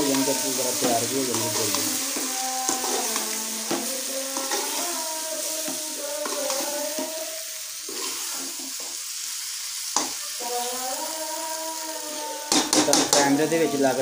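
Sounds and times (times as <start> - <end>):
spatula scraping sizzling food: 0.0 - 14.0
spatula knocking against pot: 12.5 - 13.2.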